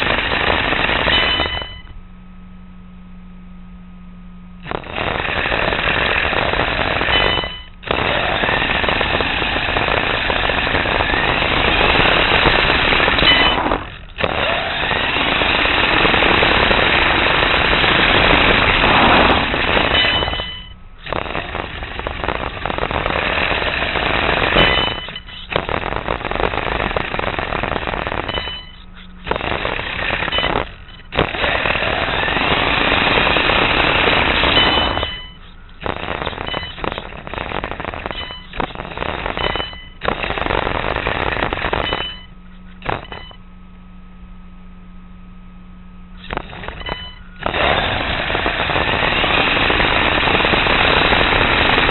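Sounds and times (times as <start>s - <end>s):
rc car rattling over asphalt: 4.8s - 35.4s, 46.2s - 51.9s.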